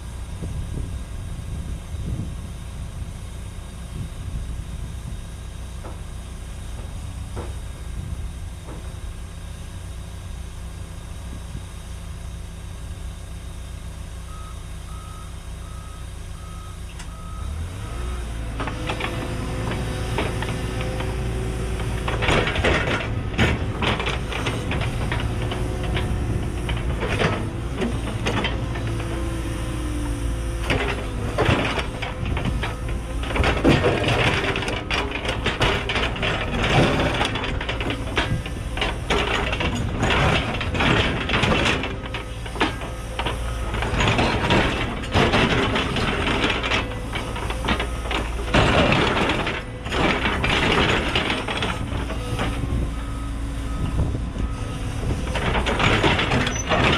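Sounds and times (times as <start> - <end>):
excavator diesel engine: 0.0 - 56.9
hydraulics whining: 14.3 - 56.9.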